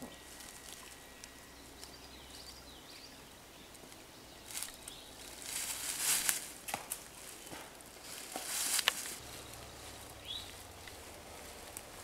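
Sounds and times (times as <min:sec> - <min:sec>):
woodland birds chirping: 0:00.0 - 0:12.0
footsteps rustling dry leaves: 0:00.2 - 0:01.2, 0:04.4 - 0:12.0.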